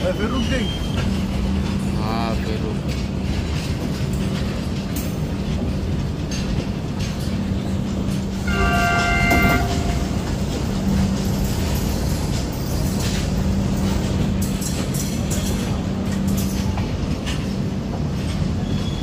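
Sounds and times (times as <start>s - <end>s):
train wheels rumbling on rails: 0.0s - 19.0s
multi-tone train horn: 8.4s - 10.4s.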